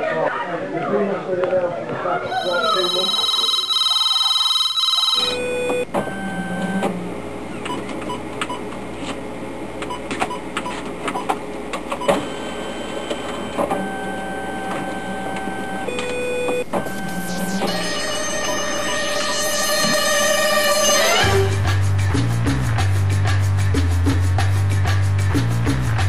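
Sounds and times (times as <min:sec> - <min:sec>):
fax machine beeping tones: 0:02.3 - 0:06.8, 0:12.0 - 0:20.0
fax machine whirring: 0:02.3 - 0:09.2, 0:09.8 - 0:20.3.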